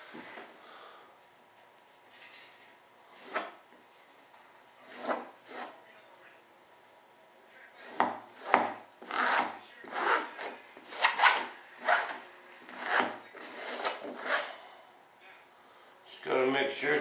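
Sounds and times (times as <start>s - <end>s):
applicator rubbing wet fiberglass: 7.8s - 14.5s.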